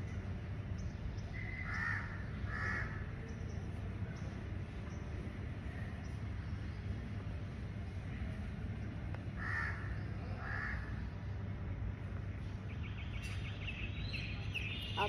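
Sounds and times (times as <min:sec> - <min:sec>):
crow cawing: 0:01.6 - 0:03.0, 0:09.4 - 0:10.8.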